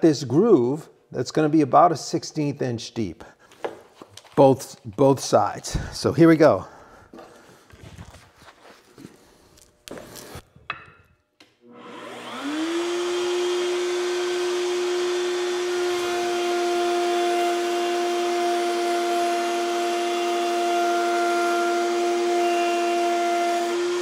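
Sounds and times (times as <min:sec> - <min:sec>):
router whining cutting wood: 0:11.6 - 0:24.0.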